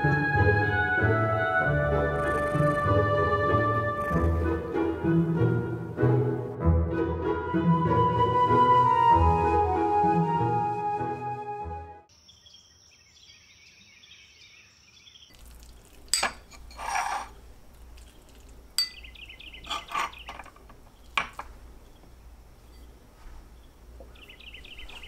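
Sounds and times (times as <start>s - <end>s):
dishes and spoon clinking: 15.7s - 17.4s, 18.0s - 21.5s
high chirping: 18.0s - 21.2s.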